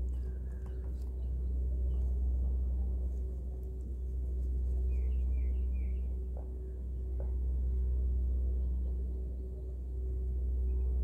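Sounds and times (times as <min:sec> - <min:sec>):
faint high bird chirps: 0:00.0 - 0:02.2, 0:04.8 - 0:06.2
low droning hum with gong tones: 0:00.0 - 0:11.0.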